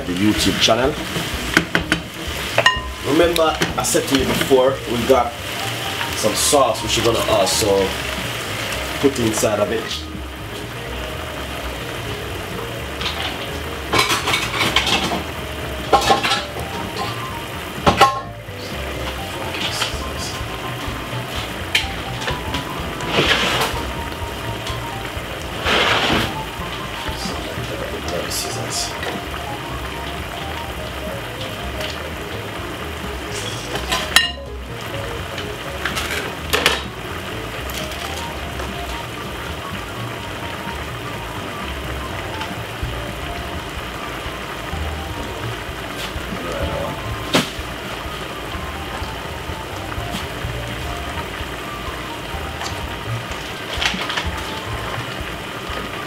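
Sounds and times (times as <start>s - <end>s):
stir-fry sizzling in a pan: 0.0s - 56.0s
utensil clinking on a pan: 2.6s - 4.6s, 13.0s - 15.2s, 17.8s - 18.3s.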